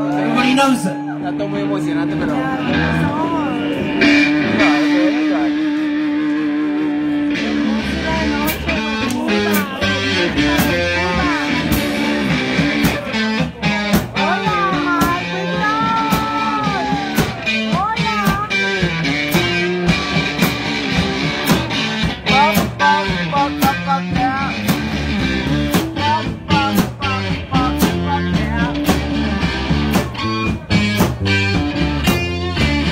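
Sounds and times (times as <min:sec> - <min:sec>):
bass guitar: 0:00.0 - 0:32.9
electric guitar lead: 0:00.0 - 0:32.9
steady drum beat: 0:07.1 - 0:32.9.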